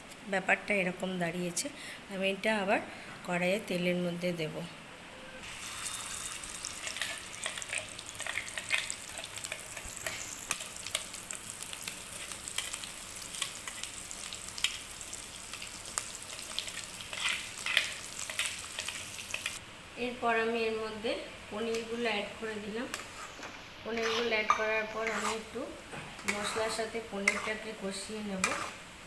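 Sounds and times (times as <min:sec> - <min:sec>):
paste sizzling in oil: 0:05.4 - 0:19.6, 0:22.9 - 0:25.6, 0:26.2 - 0:29.0
oil popping and crackling: 0:05.6 - 0:19.6.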